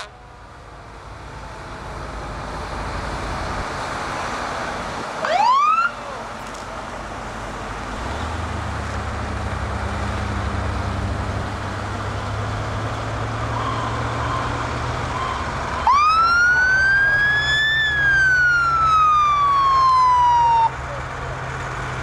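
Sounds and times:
fire truck siren wail: 0.0 - 0.7, 5.2 - 6.3, 12.0 - 21.1
truck engines rumbling: 0.0 - 22.0.

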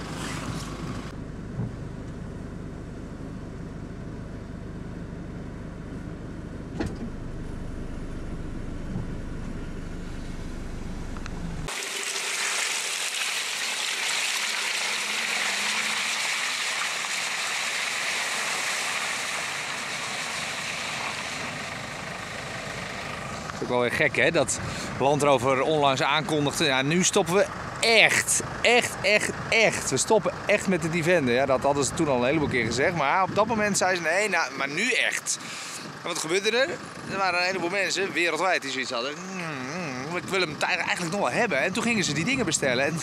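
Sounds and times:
low engine rumble: 0.0 - 11.7, 14.5 - 43.0
tyres hissing through mud: 11.7 - 23.6.

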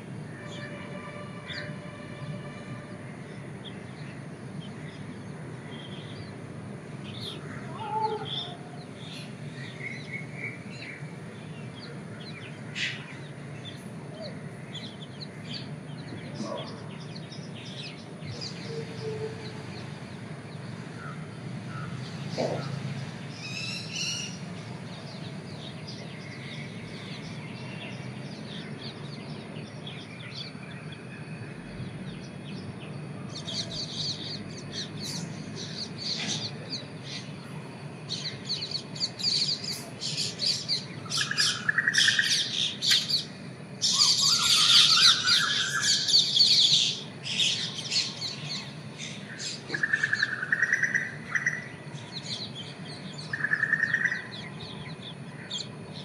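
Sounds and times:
low background hum: 0.0 - 56.0
lower bird calls: 7.0 - 56.0
high bird chirps: 38.7 - 51.7.

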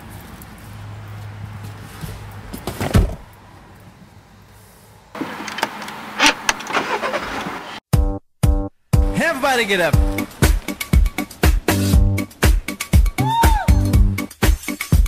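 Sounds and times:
steady car cabin noise: 1.6 - 4.1, 9.0 - 13.2
car door shutting: 2.5 - 3.3.

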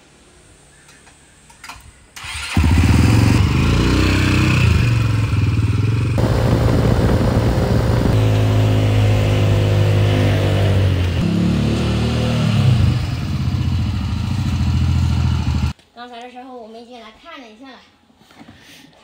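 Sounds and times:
motorcycle engine running: 2.6 - 15.7.

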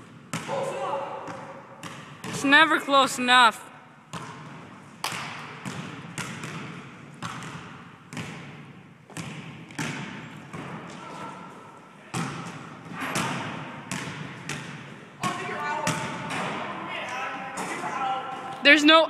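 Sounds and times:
basketball dribbling: 1.2 - 2.6, 4.1 - 11.0, 12.1 - 16.6.

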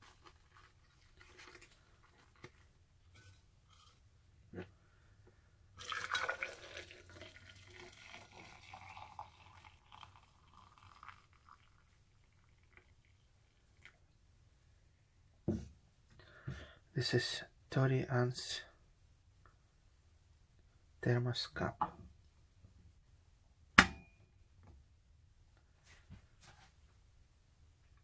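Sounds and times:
water pouring into cup: 5.8 - 14.0.

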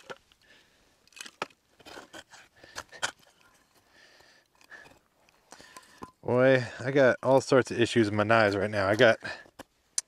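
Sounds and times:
small objects clicking and scraping: 0.0 - 6.2.

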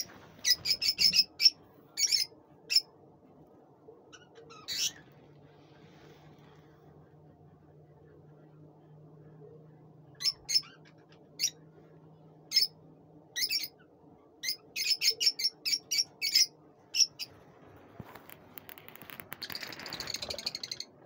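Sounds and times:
lovebirds chirping: 0.0 - 3.0, 4.0 - 5.3, 10.1 - 11.7, 12.4 - 17.4.

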